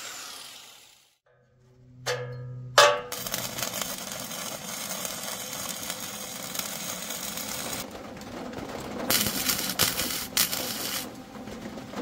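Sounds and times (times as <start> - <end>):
wire welder welding: 0.0 - 1.2, 2.1 - 7.9, 9.1 - 11.2.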